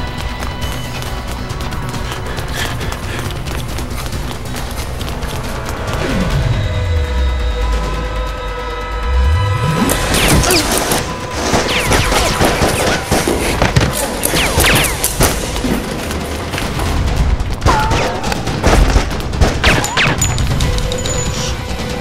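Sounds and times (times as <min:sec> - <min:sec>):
action music: 0:00.0 - 0:22.0
rapid gunfire: 0:09.9 - 0:20.8.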